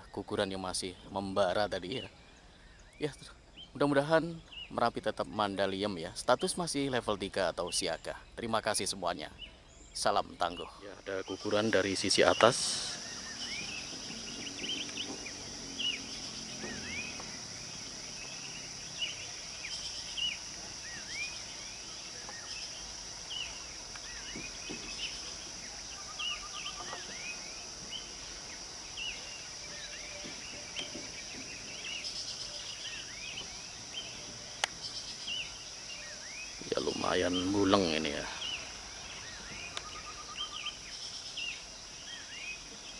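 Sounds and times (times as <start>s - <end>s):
bird chirps: 0.0s - 42.9s
high insect drone: 10.0s - 42.9s.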